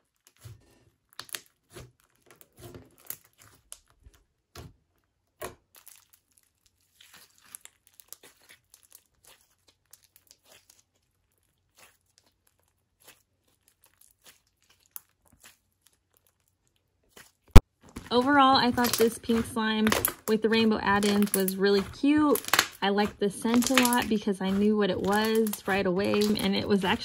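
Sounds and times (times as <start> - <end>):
slime crackling and popping: 0.0 - 27.0
slime squeezed by hand: 5.6 - 18.2.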